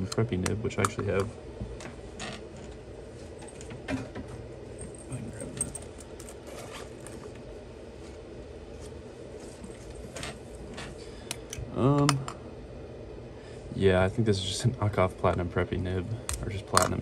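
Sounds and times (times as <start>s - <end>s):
handling clicks and rustles: 0.0s - 8.2s
low room hum: 0.0s - 17.0s.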